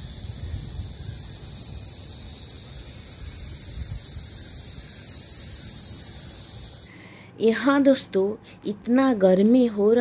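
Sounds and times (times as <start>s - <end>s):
wind rumble on microphone: 0.0s - 4.8s
crickets chirping: 0.0s - 10.0s.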